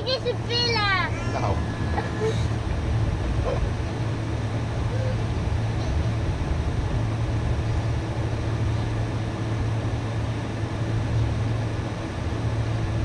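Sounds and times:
jet engines hum and rush: 0.0s - 13.0s.

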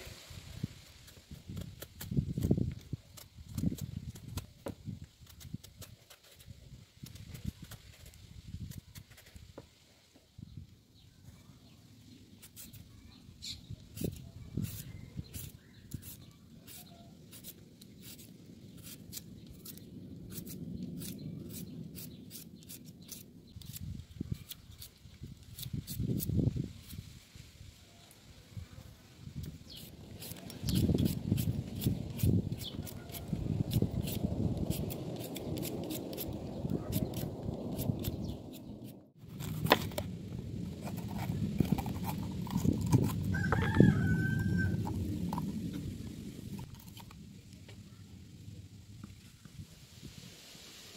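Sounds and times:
peeler scraping potato skin: 1.1s - 4.5s, 12.4s - 12.9s, 13.9s - 27.0s, 29.7s - 40.0s, 40.7s - 43.8s
knife cutting bell pepper: 13.9s - 27.0s, 40.7s - 43.8s
rooster crowing: 43.2s - 45.0s.

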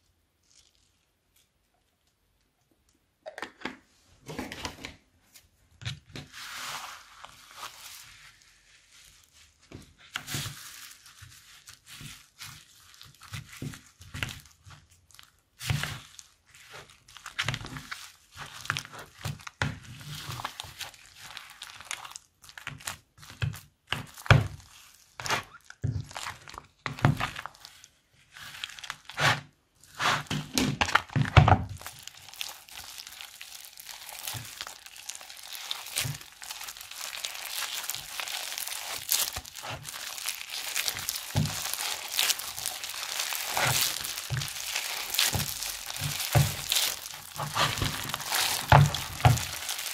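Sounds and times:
foam beads crackling in slime: 0.0s - 1.8s, 6.2s - 49.9s
spatula scraping plastic bowl: 29.1s - 30.7s, 40.8s - 49.8s.

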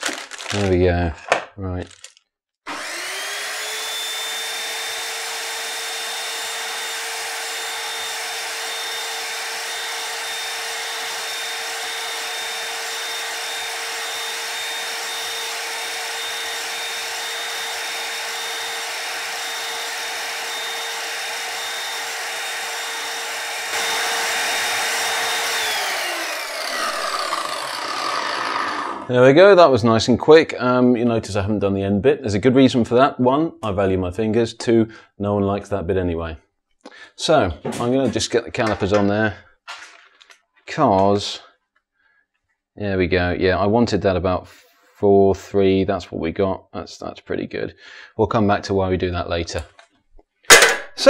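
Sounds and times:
chop saw motor whining: 2.6s - 29.2s
saw blade slicing carrot: 2.7s - 29.1s.

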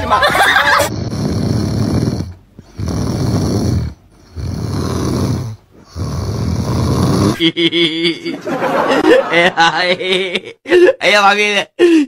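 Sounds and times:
puppy snoring: 0.8s - 7.4s.

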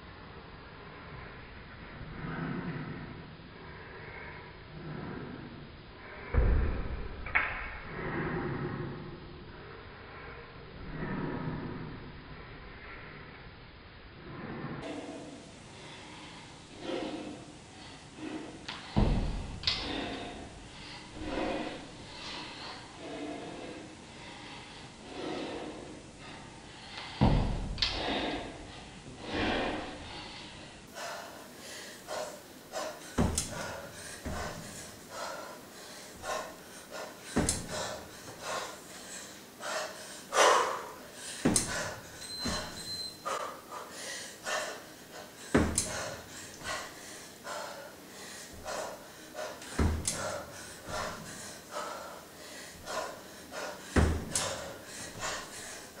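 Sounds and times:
short sharp breaths: 14.8s - 56.0s
kettlebell low thud: 18.9s - 19.6s, 27.2s - 28.0s.

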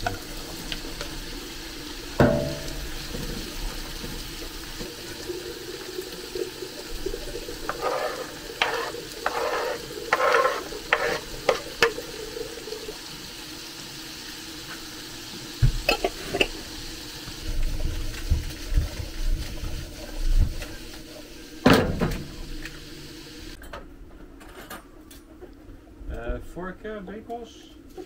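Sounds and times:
food sizzling in a frying pan: 0.0s - 23.6s
utensil knocking against pan: 2.2s - 2.9s.

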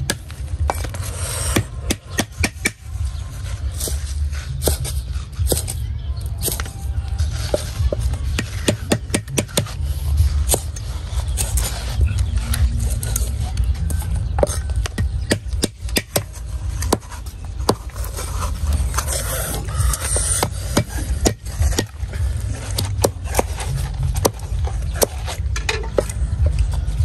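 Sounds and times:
cleaver chopping on wooden block: 8.4s - 9.8s, 14.4s - 17.8s.

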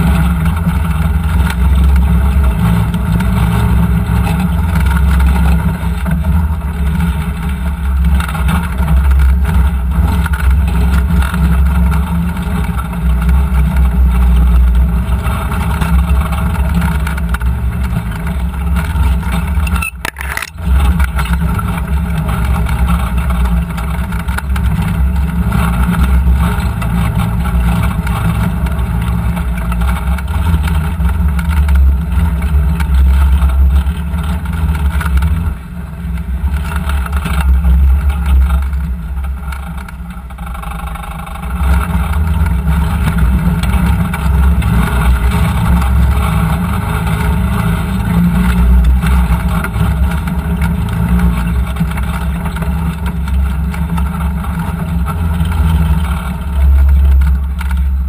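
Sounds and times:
utv engine droning: 0.0s - 58.0s.

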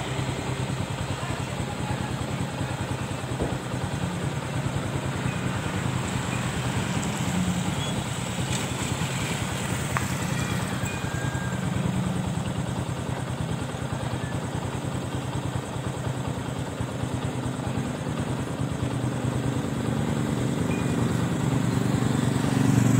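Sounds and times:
small engine running steadily: 0.0s - 22.9s.

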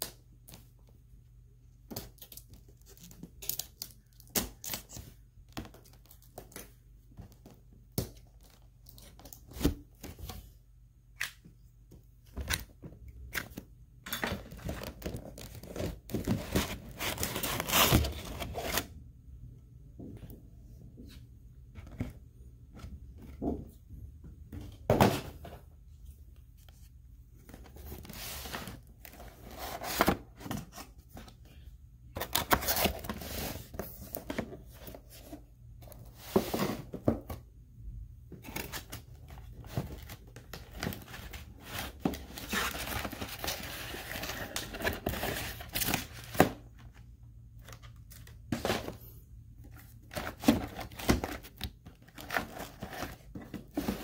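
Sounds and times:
packaging rustling and crinkling: 38.4s - 46.6s.

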